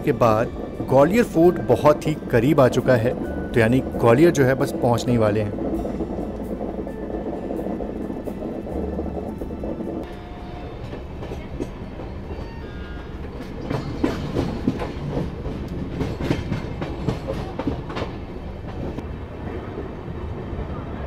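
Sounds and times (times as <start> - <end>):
train wheels clacking over rail joints: 10.7 - 19.0.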